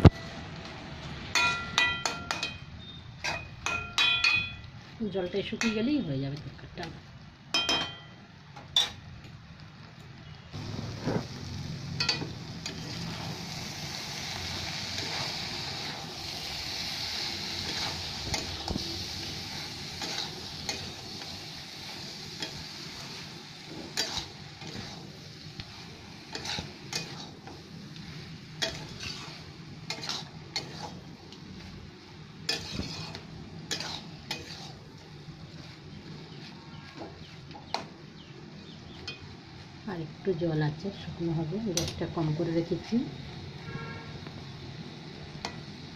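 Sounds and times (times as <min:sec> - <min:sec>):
curry sizzling in a pan: 0:00.0 - 0:45.9
spatula scraping a pan: 0:17.5 - 0:25.2, 0:25.8 - 0:31.8, 0:32.4 - 0:37.5.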